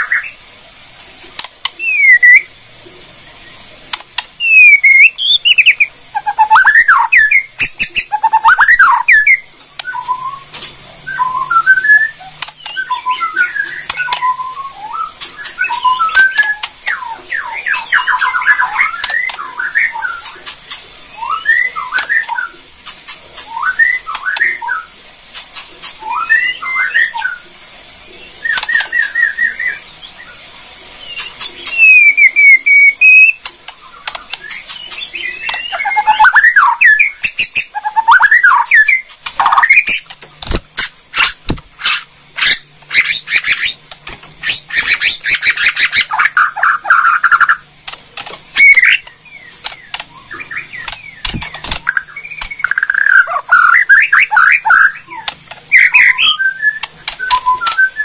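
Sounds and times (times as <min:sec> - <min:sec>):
bird singing whistled phrases: 0:01.8 - 0:02.5, 0:04.4 - 0:20.4, 0:21.1 - 0:22.6, 0:23.4 - 0:24.9, 0:26.0 - 0:27.4, 0:28.2 - 0:30.4, 0:31.0 - 0:40.0, 0:48.6 - 0:58.0
dry clicking bird notes: 0:03.9 - 0:24.7, 0:28.5 - 0:29.3, 0:31.1 - 0:58.0.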